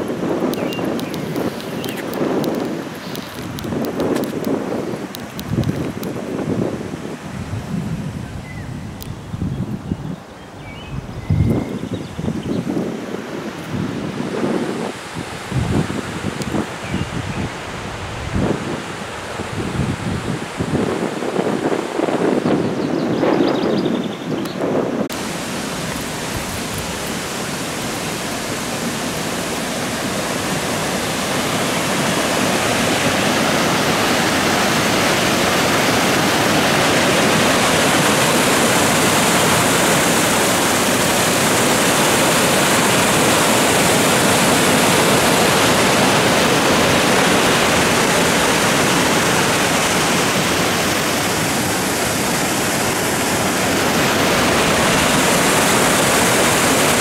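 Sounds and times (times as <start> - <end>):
waterfall rushing: 0.0 - 8.6, 25.0 - 57.0.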